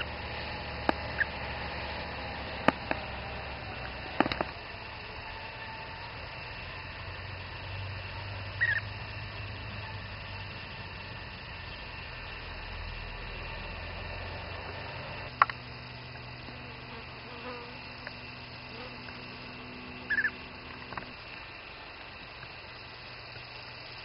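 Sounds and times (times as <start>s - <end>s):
outdoor hiss and hum: 0.0s - 24.0s
bird chirping: 0.9s - 1.4s, 8.6s - 9.9s, 19.6s - 20.8s.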